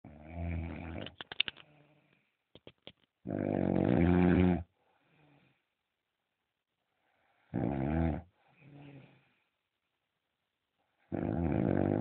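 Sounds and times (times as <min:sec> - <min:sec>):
man snoring: 0:03.3 - 0:04.7, 0:07.5 - 0:08.3, 0:11.1 - 0:12.0
faint breath: 0:04.8 - 0:05.9, 0:06.8 - 0:07.5, 0:08.3 - 0:09.7.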